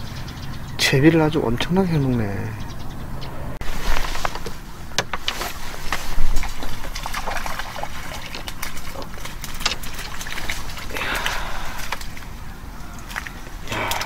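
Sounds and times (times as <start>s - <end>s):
low rumble: 2.5s - 3.9s
water trickling: 4.3s - 14.0s.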